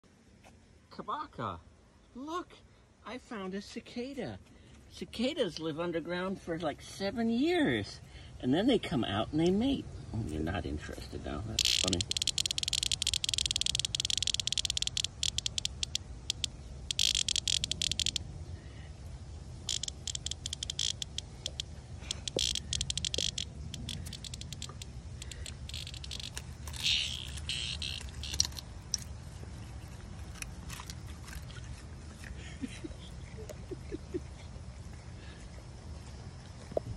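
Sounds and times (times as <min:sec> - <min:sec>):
cicada rattling buzz: 0:11.2 - 0:31.5.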